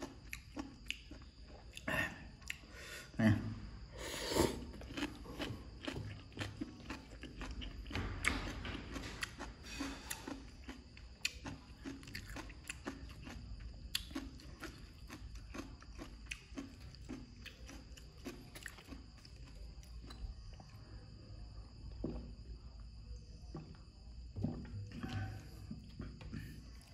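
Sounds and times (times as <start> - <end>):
person chewing and crunching food: 0.0 - 2.8, 4.2 - 21.2, 23.4 - 26.9.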